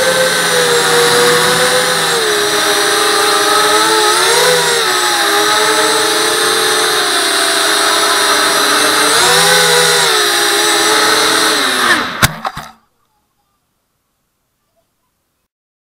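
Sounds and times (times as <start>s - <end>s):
quadcopter motors whining: 0.0s - 12.7s
quadcopter hitting ground: 0.0s - 12.8s.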